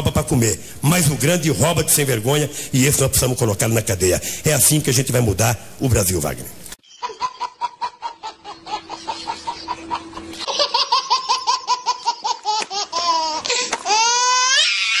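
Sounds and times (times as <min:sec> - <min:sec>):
baby laughing: 0:06.8 - 0:14.7
baby squealing: 0:10.8 - 0:15.0.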